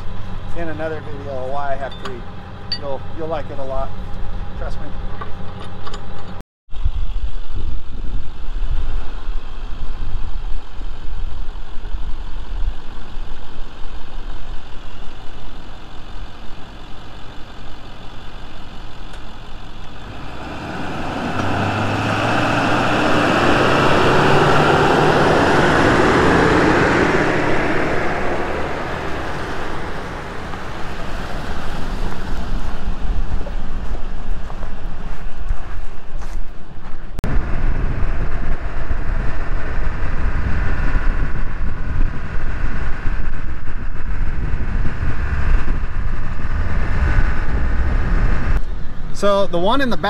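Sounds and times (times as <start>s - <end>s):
truck engine passing: 15.4s - 43.0s
tyres crunching on gravel: 29.1s - 37.1s.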